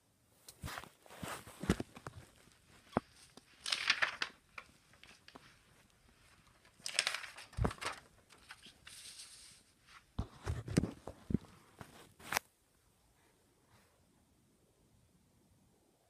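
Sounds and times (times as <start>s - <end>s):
handling rustles: 0.5s - 12.4s.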